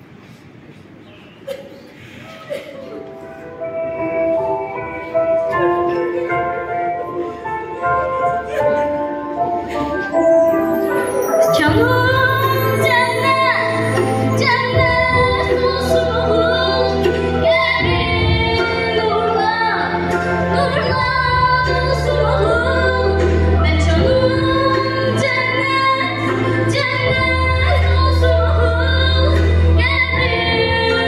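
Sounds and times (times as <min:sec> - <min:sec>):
girls singing in unison: 0:11.5 - 0:31.0.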